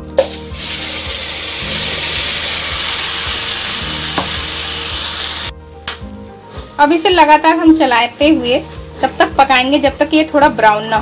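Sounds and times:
paste sizzling in oil: 0.2 - 5.5.

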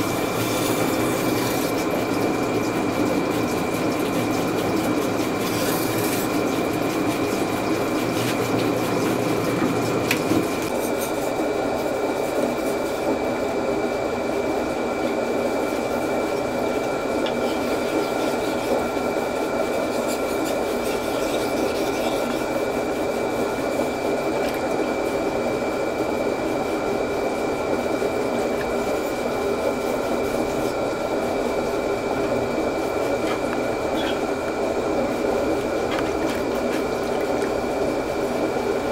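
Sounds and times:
grinding wheel humming: 0.0 - 11.9, 14.8 - 38.9
trickling water: 31.4 - 38.8.

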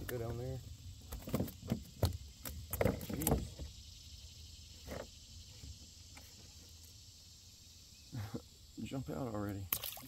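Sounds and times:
knocks and creaks on plastic kayak: 0.0 - 3.8, 4.7 - 6.8.

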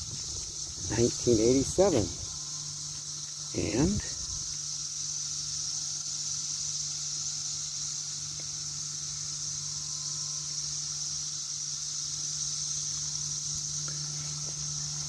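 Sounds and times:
cicadas chorus droning: 0.0 - 15.0.

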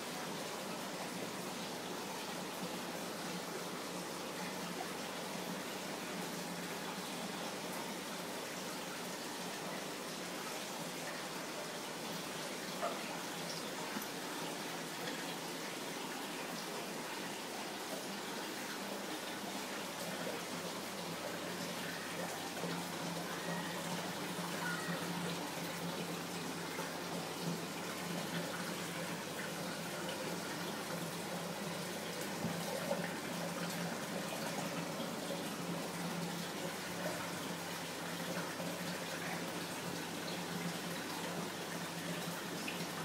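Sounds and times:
water running and splashing: 8.3 - 43.0.

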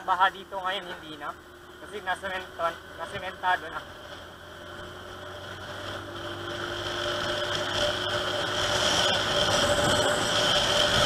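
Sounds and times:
scooter engine running: 0.0 - 11.0
wind on camera: 7.2 - 11.0.

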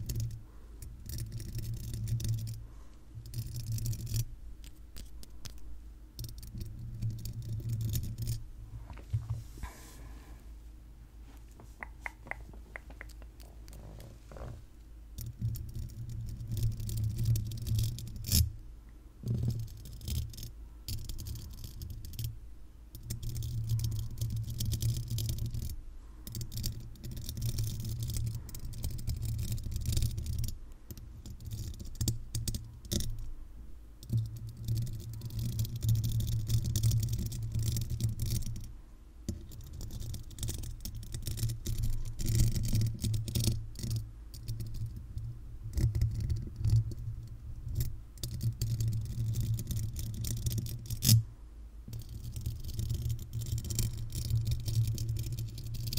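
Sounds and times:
sharp clicks: 11.8 - 13.8.

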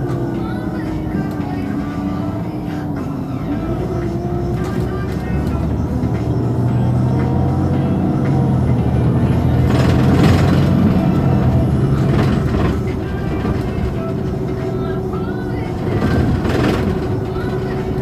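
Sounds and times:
bus diesel engine idling: 0.0 - 18.0.

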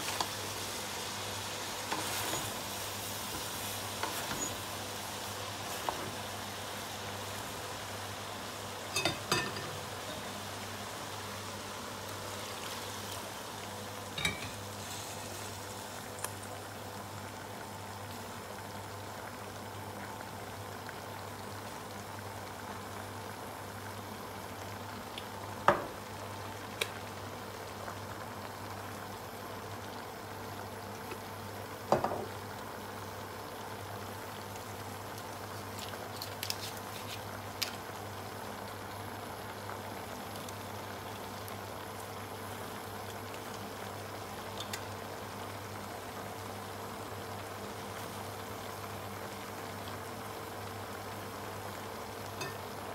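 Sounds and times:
pot hissing on gas stove: 0.0 - 52.9.

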